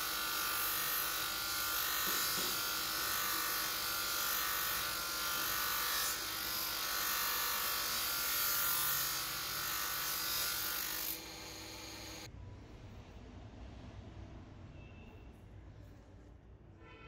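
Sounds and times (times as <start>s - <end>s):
knife blade hissing on grinding wheel: 0.0s - 12.3s
motor hum: 9.5s - 12.3s.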